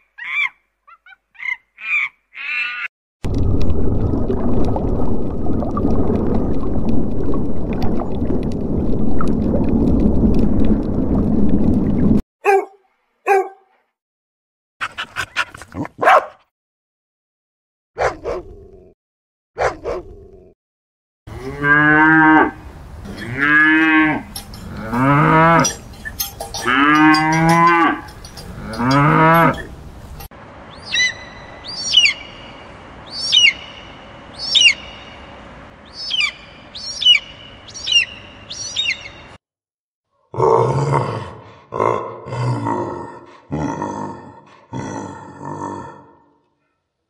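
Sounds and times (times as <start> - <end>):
dog barks: 12.4 - 13.8, 14.9 - 16.5, 18.0 - 18.5, 19.6 - 20.1
cow mooing: 21.3 - 25.8, 26.6 - 29.7.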